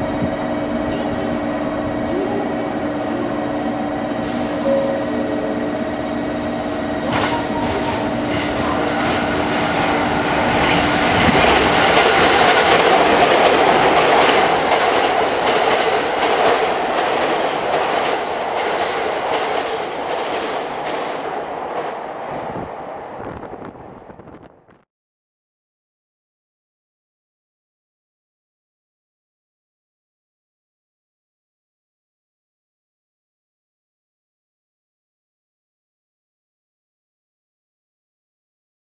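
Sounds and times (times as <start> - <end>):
train wheels rushing on rail: 0.0 - 24.5
wheels clacking over rail joints: 7.0 - 22.0.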